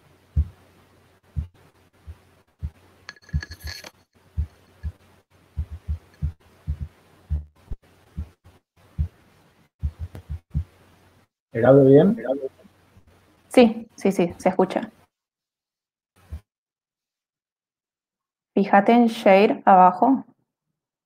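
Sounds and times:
dull low thuds: 0:00.3 - 0:00.6, 0:01.3 - 0:02.8, 0:05.6 - 0:09.2, 0:09.8 - 0:10.8.

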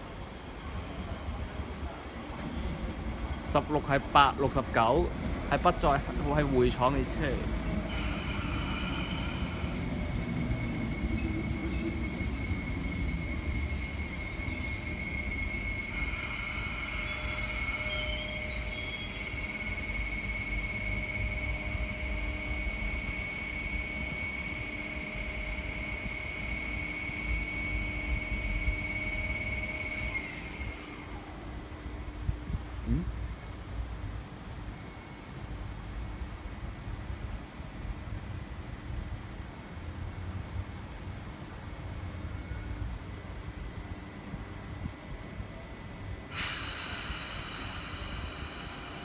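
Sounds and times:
electric train rumble: 0:00.0 - 0:49.0
high-pitched squeal: 0:07.9 - 0:31.6, 0:46.3 - 0:49.0.

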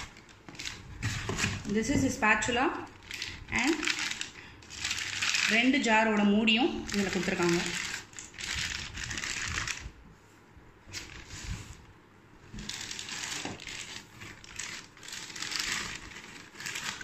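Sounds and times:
plastic packaging crinkling: 0:00.0 - 0:10.0, 0:10.9 - 0:17.0.

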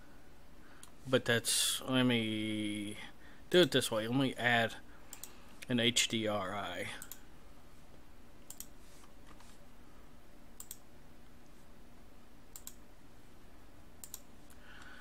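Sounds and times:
faint steady hum: 0:00.0 - 0:15.0
computer mouse double-clicking: 0:10.6 - 0:10.8, 0:14.0 - 0:14.2.

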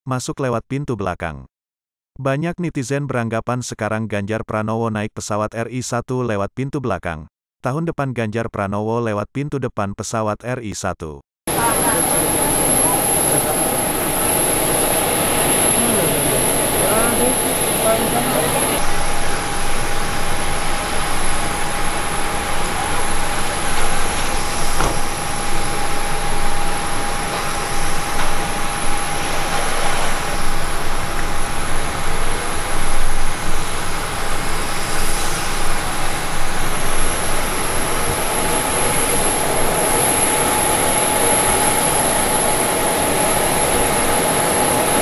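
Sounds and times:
jet engine roaring and whining: 0:11.5 - 0:45.0.

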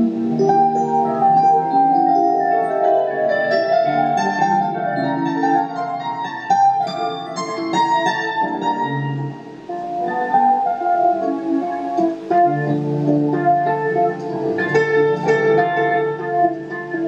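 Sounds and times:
instrumental keyboard music: 0:00.0 - 0:17.0.

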